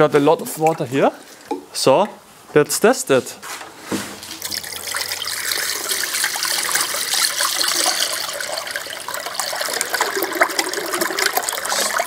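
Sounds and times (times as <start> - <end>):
water pouring into container: 4.2 - 12.0.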